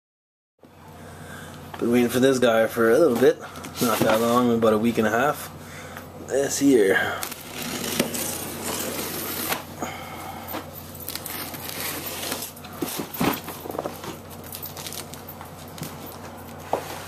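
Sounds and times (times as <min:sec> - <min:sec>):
cardboard scraping and rustling: 0:03.2 - 0:04.5, 0:07.3 - 0:09.7, 0:11.1 - 0:15.2
packing tape tearing: 0:07.2 - 0:09.7, 0:11.0 - 0:13.8.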